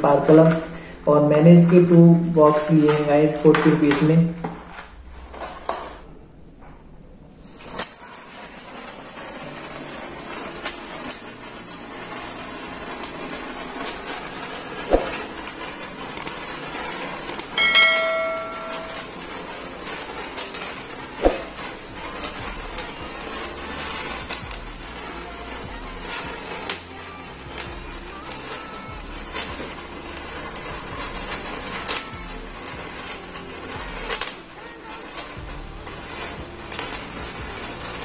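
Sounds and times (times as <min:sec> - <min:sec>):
sparkler hissing and crackling: 0:00.0 - 0:06.2, 0:07.4 - 0:38.0
match striking: 0:07.4 - 0:38.0
short ringing chime: 0:17.6 - 0:19.3.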